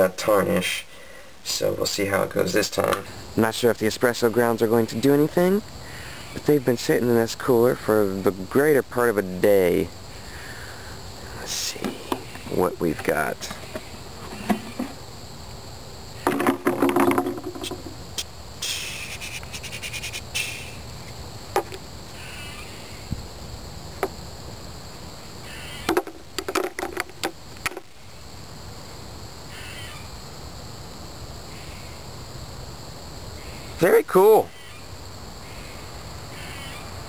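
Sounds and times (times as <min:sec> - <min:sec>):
plastic scraping and knocking: 0:11.8 - 0:15.0, 0:16.2 - 0:18.0, 0:21.5 - 0:21.8, 0:25.9 - 0:27.9
bird cawing: 0:22.2 - 0:23.0, 0:25.4 - 0:26.0, 0:29.5 - 0:30.1, 0:34.5 - 0:34.8, 0:35.4 - 0:36.9.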